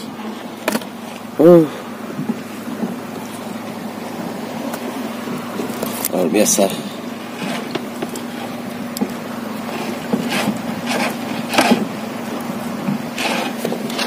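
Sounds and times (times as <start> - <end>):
engine humming: 0.0 - 14.0
knocks and scrapes: 7.3 - 11.9, 12.8 - 14.0.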